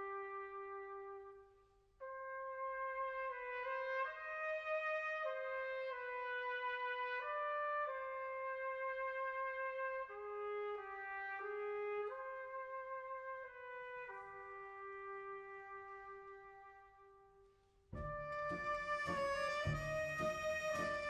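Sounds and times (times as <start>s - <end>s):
slow brass melody: 0.0s - 21.0s.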